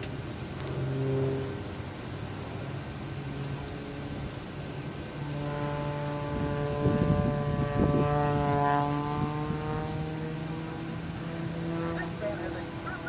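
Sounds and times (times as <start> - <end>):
propeller plane engine droning: 0.0 - 13.0.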